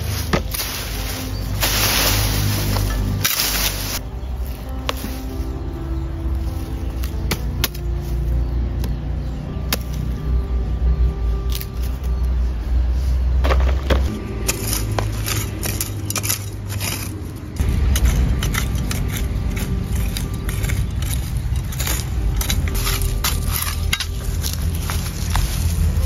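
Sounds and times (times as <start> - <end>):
hands digging in dry soil: 0.0 - 8.3, 11.5 - 26.0
rustling vines and dry leaves: 0.0 - 26.0
steady low rumble: 0.0 - 26.0.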